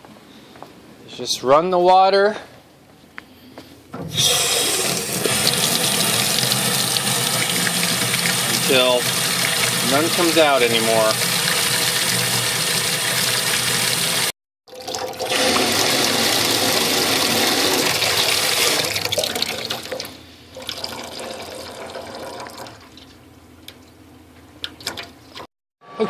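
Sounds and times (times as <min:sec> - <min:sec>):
water running into sink: 0:04.1 - 0:23.1.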